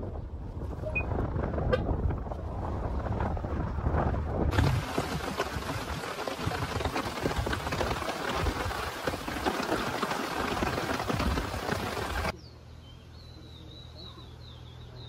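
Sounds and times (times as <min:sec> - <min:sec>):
rain falling: 0:04.5 - 0:12.3.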